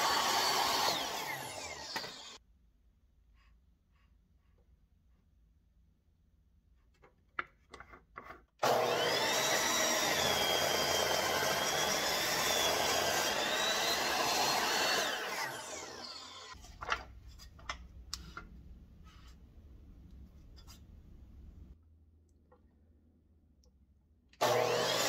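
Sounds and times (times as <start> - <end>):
miter saw cutting wood: 0.0 - 2.4, 8.6 - 16.6, 24.4 - 25.0
saw blade spinning down: 0.0 - 2.4, 8.6 - 16.6, 24.4 - 25.0.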